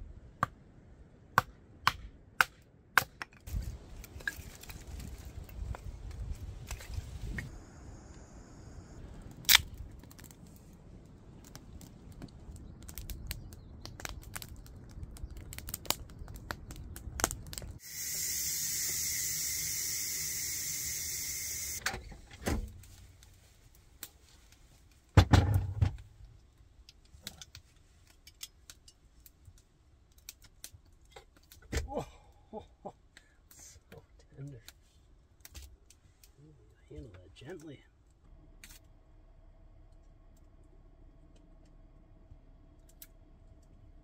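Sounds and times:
kindling fire crackling: 3.0s - 21.8s, 22.5s - 25.2s, 26.1s - 37.9s
steam hissing from pressure cooker: 17.8s - 21.8s.

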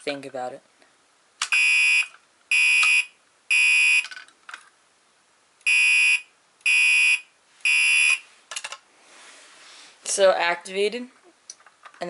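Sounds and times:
fire alarm horn blasts: 5.7s - 8.2s.

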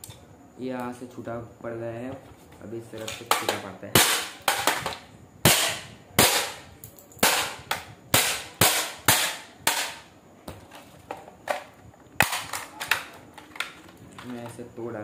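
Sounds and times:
plastic cracking and knocking: 3.0s - 5.0s, 9.7s - 14.6s.

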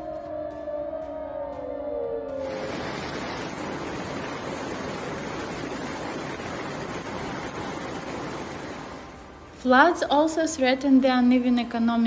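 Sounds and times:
water rushing over street: 2.4s - 10.6s.

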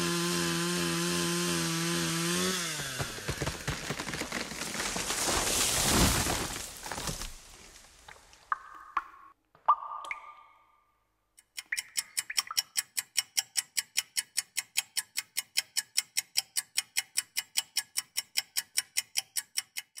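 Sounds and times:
fast clock ticking: 11.4s - 20.0s.

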